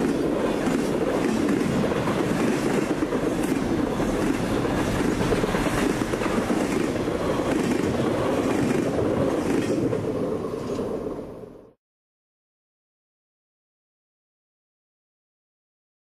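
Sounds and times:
steel wheels rushing on rail: 0:00.0 - 0:11.7
freight train passing: 0:00.0 - 0:11.8.

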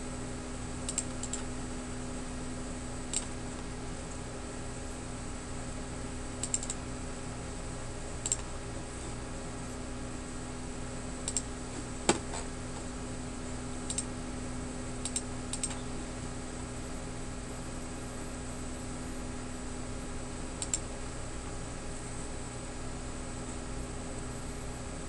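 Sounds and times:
steady low hum: 0:00.0 - 0:25.0
computer mouse clicks: 0:00.9 - 0:01.5, 0:03.1 - 0:03.7, 0:06.4 - 0:06.8, 0:08.2 - 0:08.5, 0:11.2 - 0:11.5, 0:13.8 - 0:14.1, 0:15.0 - 0:15.8, 0:20.6 - 0:20.9.

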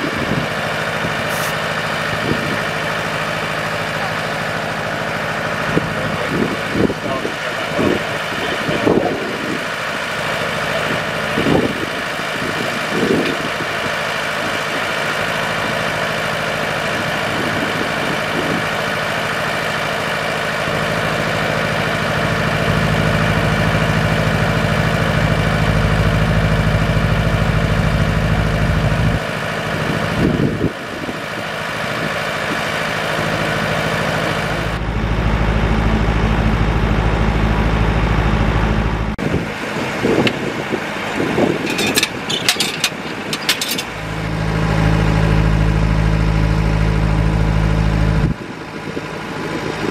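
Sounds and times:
diesel engine running: 0:00.0 - 0:49.9
steam hissing from locomotive: 0:01.3 - 0:01.6.

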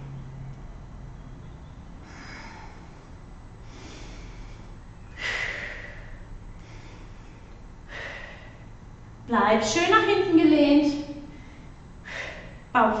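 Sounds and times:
woman breathing out hard: 0:02.0 - 0:08.7, 0:12.0 - 0:12.6.

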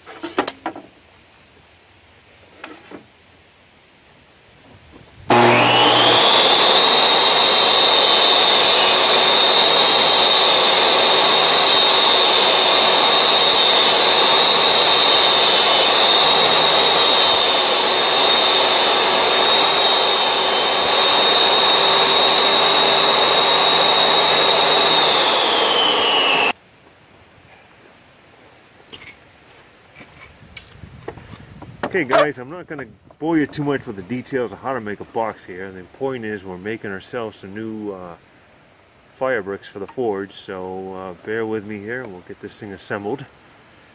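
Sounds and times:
saw ripping wooden board: 0:05.3 - 0:26.4
table saw whine: 0:05.3 - 0:26.6.

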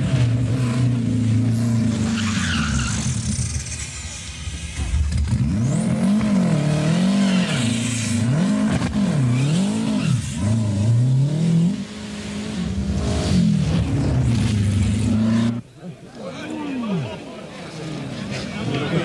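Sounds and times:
rally car engine revving hard: 0:05.1 - 0:15.6.

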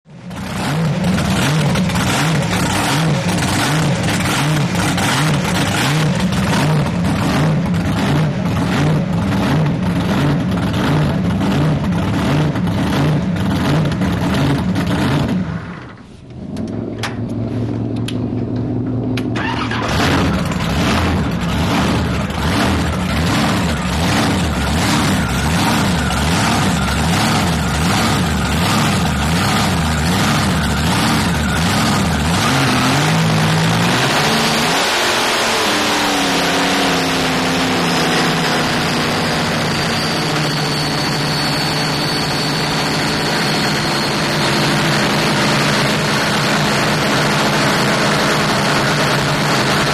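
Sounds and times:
boat engine running hard: 0:00.4 - 0:10.9, 0:20.6 - 0:49.9.

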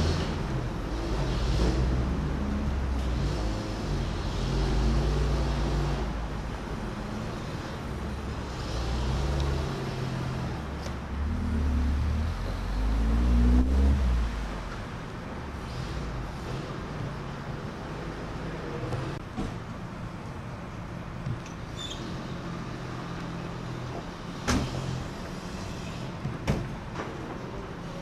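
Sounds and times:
heavy vehicle engines revving: 0:00.0 - 0:28.0.

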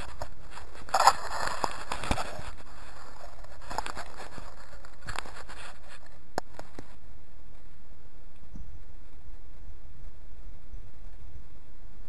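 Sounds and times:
dry leaves rustling: 0:00.0 - 0:07.0
steady low rumble: 0:00.0 - 0:12.0.

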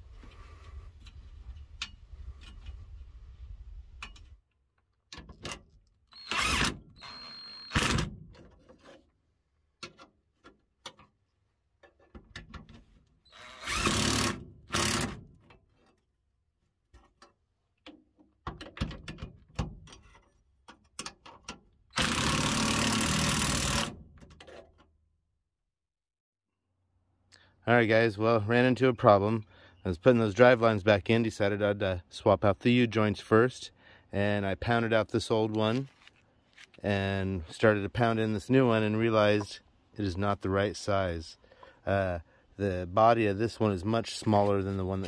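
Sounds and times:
impact wrench bursts: 0:06.1 - 0:08.1, 0:13.3 - 0:15.2, 0:21.9 - 0:24.0.

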